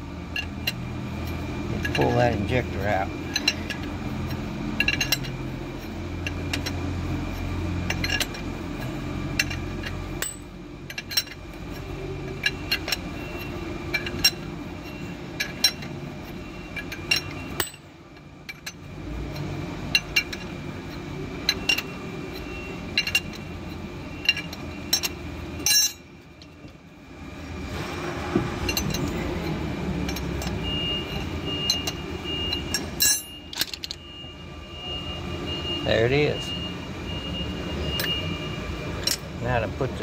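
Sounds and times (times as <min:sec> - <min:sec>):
steady low hum: 0:00.0 - 0:40.0
wrench clinking on metal: 0:00.3 - 0:26.8, 0:28.6 - 0:29.3, 0:30.0 - 0:34.0, 0:39.0 - 0:39.3.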